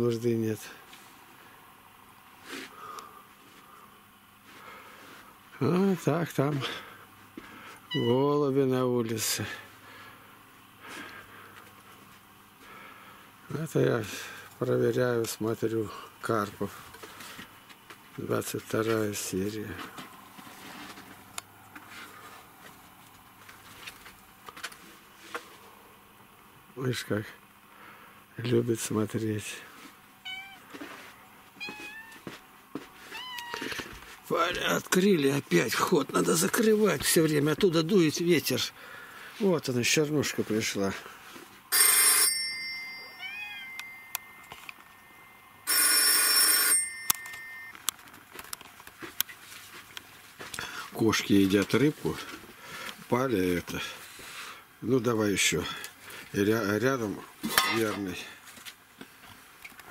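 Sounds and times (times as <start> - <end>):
telephone ringing: 41.7 - 44.5, 45.6 - 47.9.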